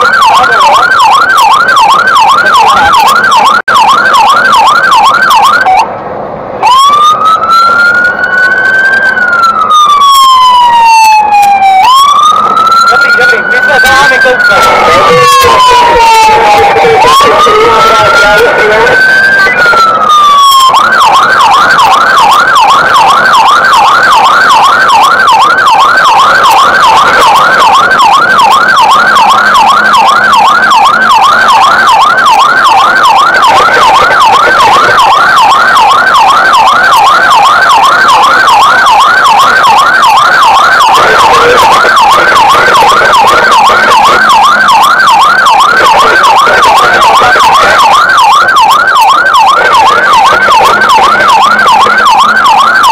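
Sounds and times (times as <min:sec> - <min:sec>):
fire engine siren yelp: 0:00.0 - 0:52.9.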